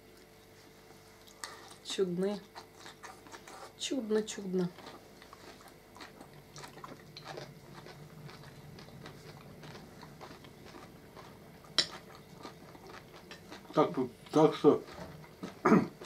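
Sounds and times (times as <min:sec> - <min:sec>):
chewing and mouth sounds: 0:00.0 - 0:16.0
cutlery clicking on plates: 0:11.8 - 0:12.0.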